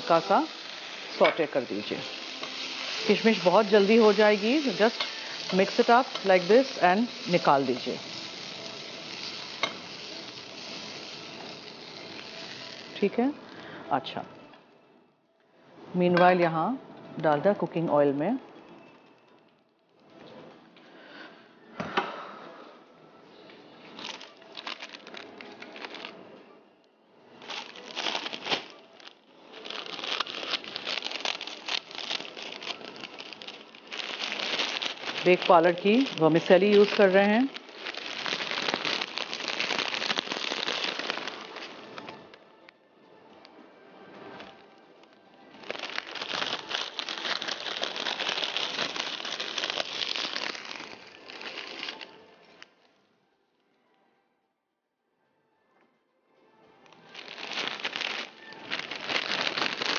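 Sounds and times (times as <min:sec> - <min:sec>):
plastic packet crinkling: 0:00.0 - 0:13.1, 0:24.0 - 0:26.2, 0:27.4 - 0:42.3, 0:45.5 - 0:52.6, 0:56.9 - 0:59.9.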